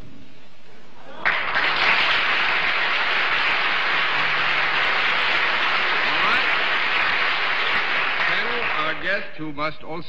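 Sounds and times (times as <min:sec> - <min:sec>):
audience applauding: 0:01.2 - 0:09.2.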